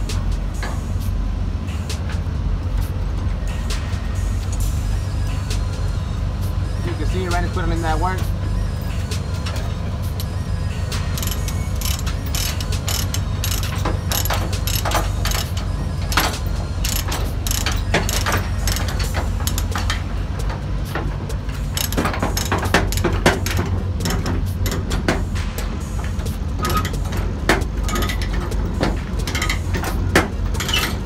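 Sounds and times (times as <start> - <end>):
steady low hum: 0.0 - 31.0
ratchet pawl clicks: 10.2 - 20.5, 21.5 - 31.0
chain links clinking: 10.8 - 20.7, 21.5 - 31.0.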